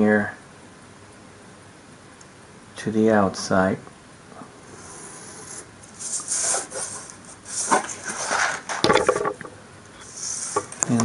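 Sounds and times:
knife scoring paper: 0:04.8 - 0:08.6.

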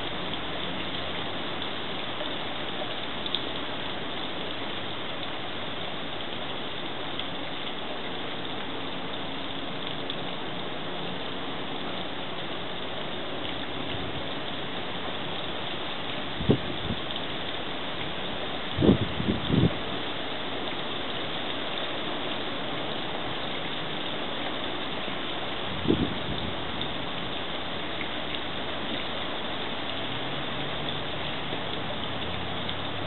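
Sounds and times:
garden fountain splashing: 0:00.0 - 0:33.0.

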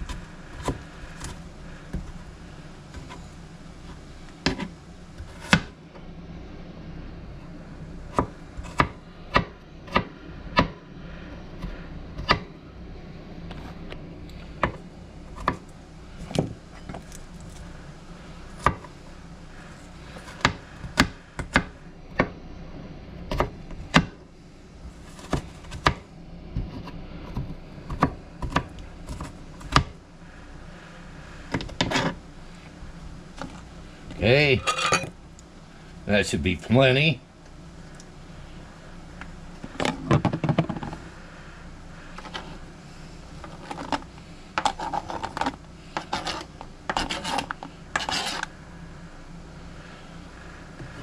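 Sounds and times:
knife chopping on plastic board: 0:12.2 - 0:12.5, 0:20.3 - 0:22.3.

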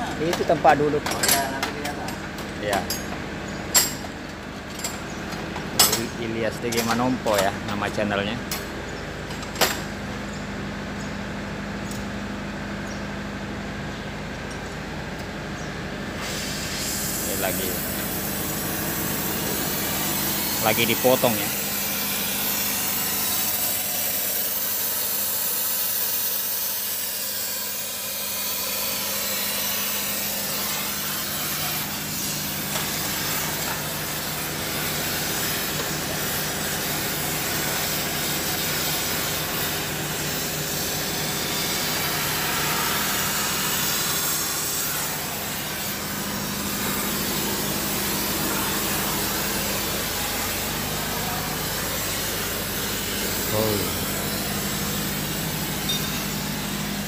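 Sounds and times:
gas cutting torch hissing: 0:16.1 - 0:57.0.

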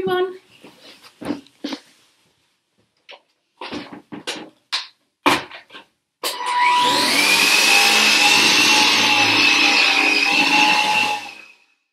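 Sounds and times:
vacuum cleaner motor whine: 0:06.3 - 0:11.6.

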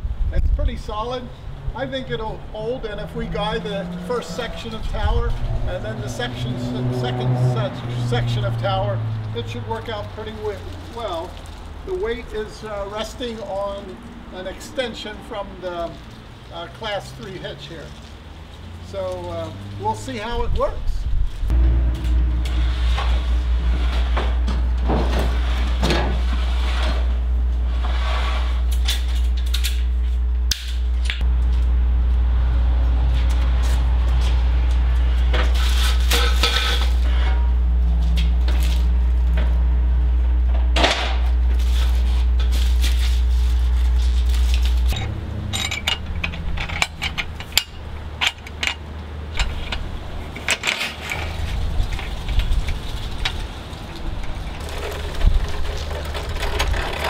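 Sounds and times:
metal tubing clinking and knocking: 0:44.9 - 0:48.8.

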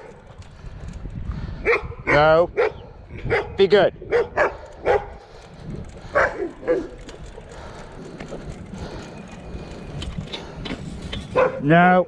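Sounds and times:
dogs barking: 0:01.6 - 0:05.2, 0:06.0 - 0:07.0, 0:11.3 - 0:11.7.

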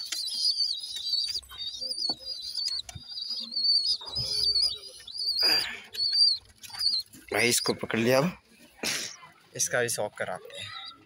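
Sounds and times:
young pigeons peeping: 0:00.0 - 0:11.0.

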